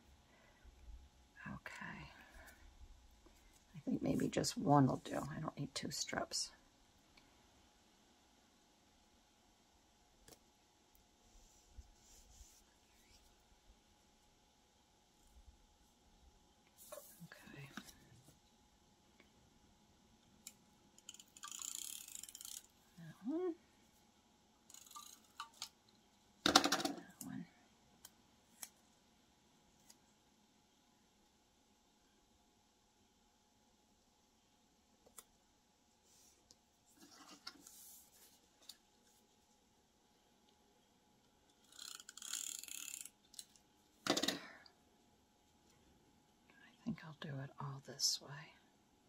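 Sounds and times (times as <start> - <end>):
person humming: 23.1 - 23.6.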